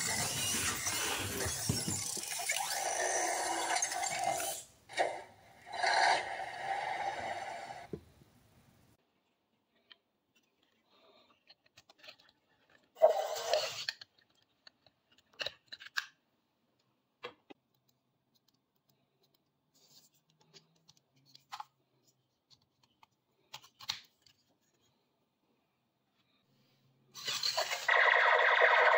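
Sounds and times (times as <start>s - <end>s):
plastic toy parts clicking: 9.7s - 12.9s, 13.6s - 16.2s.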